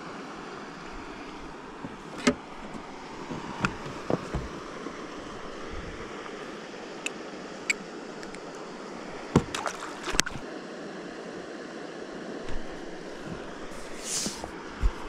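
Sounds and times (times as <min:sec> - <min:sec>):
water lapping against boat: 0:00.1 - 0:10.5, 0:12.5 - 0:15.0
clicks and knocks: 0:01.8 - 0:04.6.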